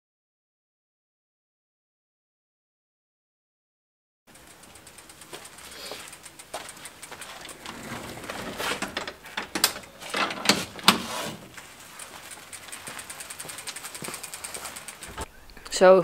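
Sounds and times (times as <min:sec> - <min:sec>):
bicycle freewheel ticking: 0:04.3 - 0:10.0, 0:11.5 - 0:15.7
wooden gate creaking and banging: 0:07.4 - 0:11.6, 0:15.0 - 0:15.6.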